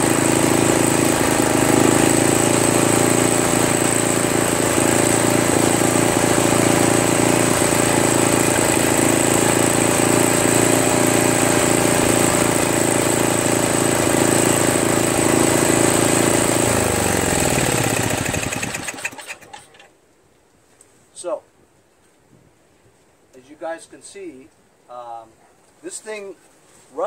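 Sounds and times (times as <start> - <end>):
engine winding down: 0.0 - 19.8
snowblower engine running: 0.0 - 19.8.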